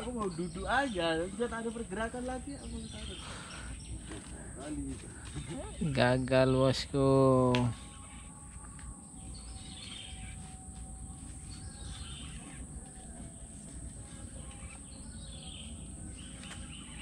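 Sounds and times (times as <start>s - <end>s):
bird calling: 11.4s - 17.0s.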